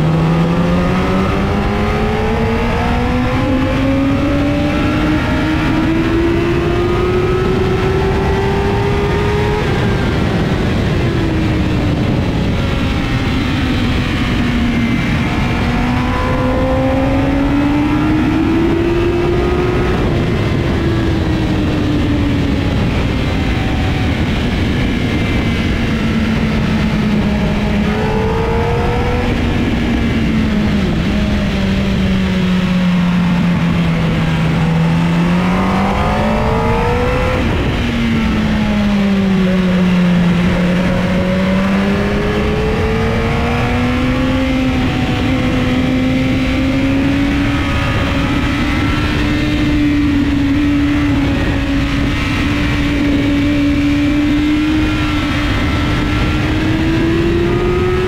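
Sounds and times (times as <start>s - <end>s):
vehicle engine revving: 0.0s - 58.0s
loud rushing noise: 7.4s - 46.6s.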